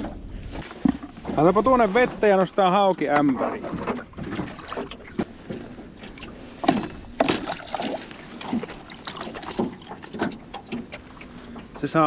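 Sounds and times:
water splashing: 0:00.5 - 0:12.0.

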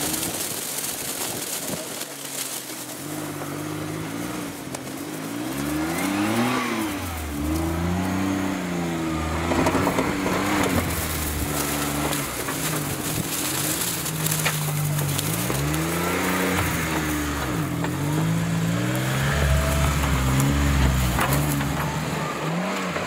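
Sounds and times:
tyres crackling on loose dirt: 0:00.0 - 0:23.0
engine revving: 0:02.0 - 0:23.0.

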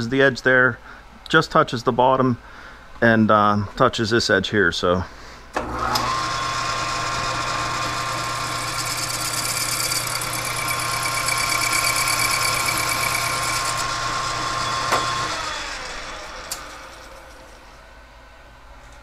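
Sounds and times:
lathe motor hum and gear whine: 0:05.6 - 0:17.8.

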